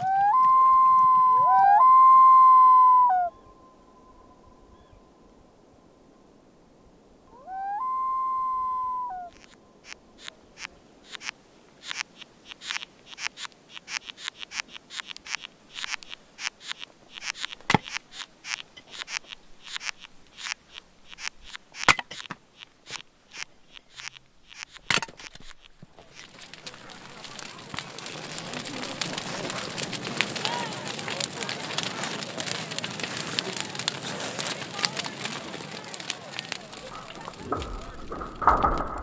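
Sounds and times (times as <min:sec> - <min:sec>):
loon wailing: 0:00.0 - 0:03.6, 0:07.3 - 0:09.6
ants chewing wood clicks: 0:09.3 - 0:39.0.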